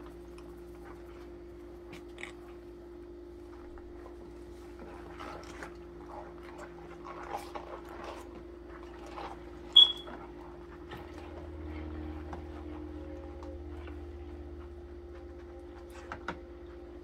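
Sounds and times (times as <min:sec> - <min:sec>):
high-pitched metal ping: 0:09.8 - 0:10.0.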